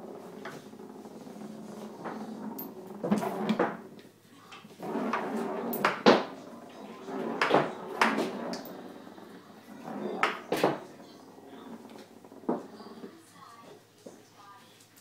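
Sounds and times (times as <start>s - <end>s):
foosball table knocks and rattles: 0.0s - 4.1s, 4.8s - 13.0s.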